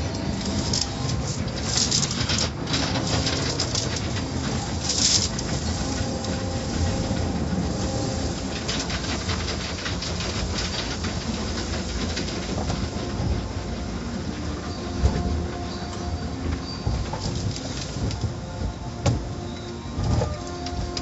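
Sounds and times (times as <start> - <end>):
water spraying on windshield: 0.0 - 19.5
car wash rumble: 0.0 - 21.0.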